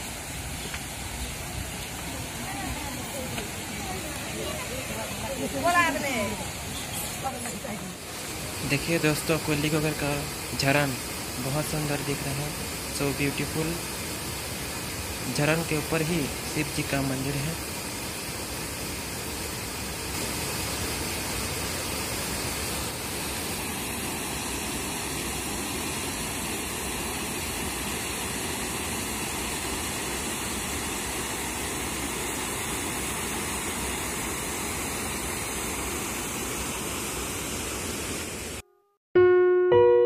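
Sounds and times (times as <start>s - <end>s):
waterfall rushing: 0.0s - 38.6s
piano music: 38.6s - 40.0s.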